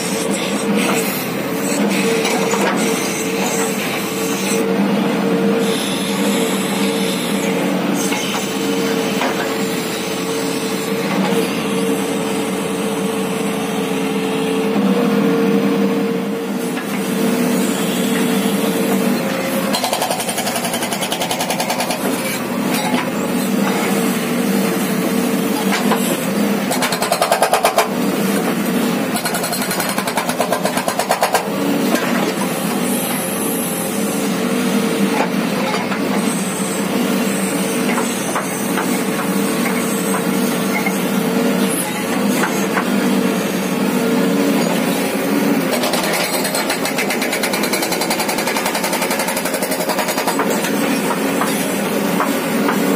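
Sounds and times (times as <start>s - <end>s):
diesel engine running under load: 0.0s - 52.9s
hydraulic breaker hammering rock: 5.8s - 10.1s, 16.6s - 33.7s, 37.4s - 43.1s, 44.1s - 52.9s.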